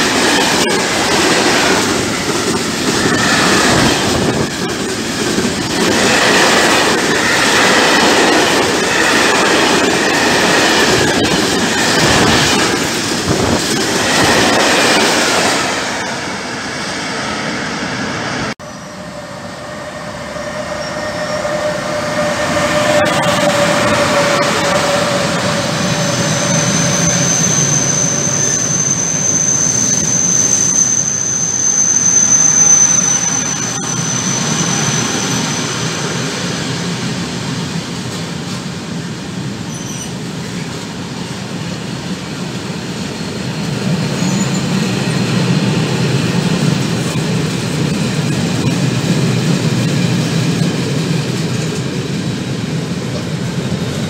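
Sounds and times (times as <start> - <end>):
train wagons rumbling past: 0.0 - 54.0
thin high squeal: 18.6 - 25.1, 25.8 - 36.2.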